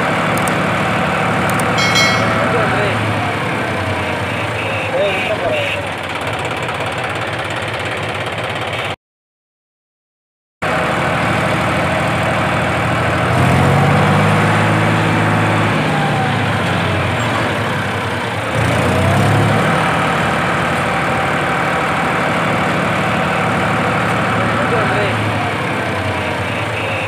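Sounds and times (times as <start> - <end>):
diesel tractor engine working hard: 10.7 - 27.0.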